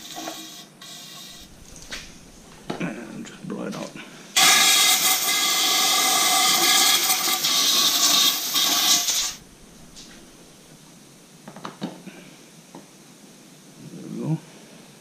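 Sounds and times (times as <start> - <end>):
compressed air hissing: 0.3 - 11.3.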